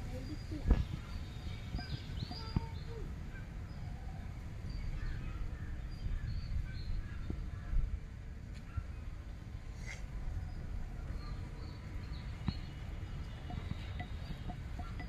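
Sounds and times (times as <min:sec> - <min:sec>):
birds chirping faintly: 0:00.0 - 0:15.0.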